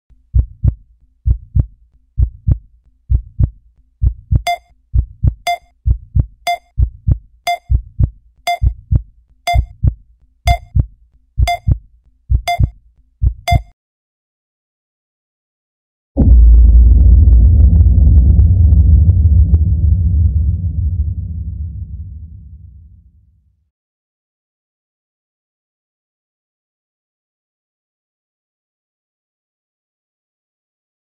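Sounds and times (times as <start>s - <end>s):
heartbeat thumps: 0.2s - 13.8s, 16.2s - 22.0s
short high beeps: 4.5s - 4.7s, 6.5s - 6.7s, 8.5s - 8.7s, 9.5s - 9.7s, 10.5s - 10.7s, 11.5s - 11.7s, 12.5s - 12.7s, 13.5s - 13.7s.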